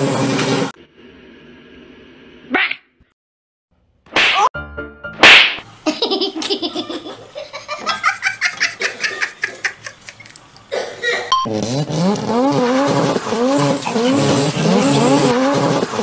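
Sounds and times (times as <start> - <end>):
rapid pulsing laughter: 5.9 - 10.2.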